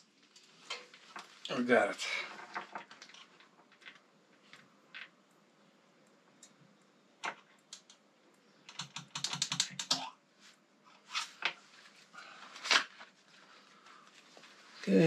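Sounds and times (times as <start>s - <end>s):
hand tools clicking and tapping: 8.7s - 10.0s.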